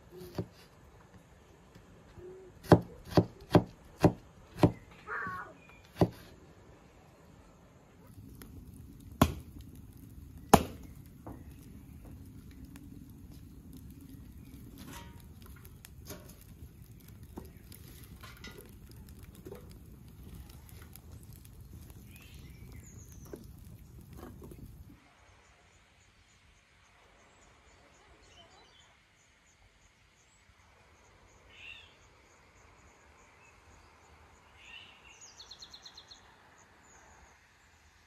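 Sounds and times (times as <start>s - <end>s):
fire crackling and popping: 8.0s - 25.0s
wood fire rumbling in stove: 8.0s - 25.0s.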